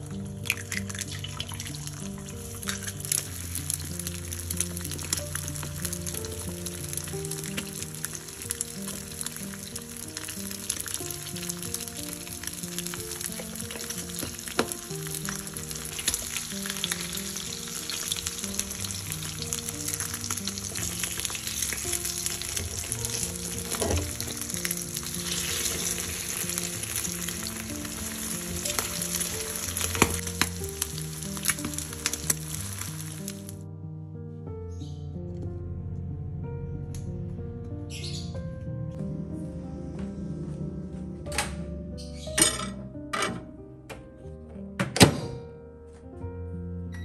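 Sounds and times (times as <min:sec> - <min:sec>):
eggs sizzling in pan: 0:00.0 - 0:33.6
background music: 0:00.0 - 0:47.0.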